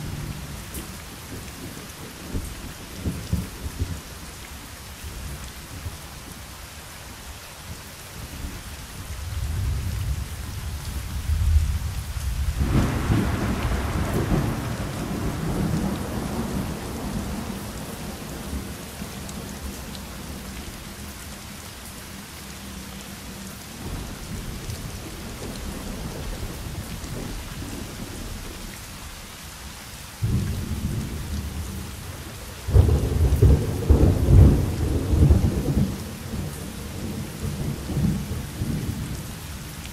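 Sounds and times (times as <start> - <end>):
steady rain: 0.0 - 39.9
rolling thunder: 9.3 - 19.0, 32.6 - 39.1.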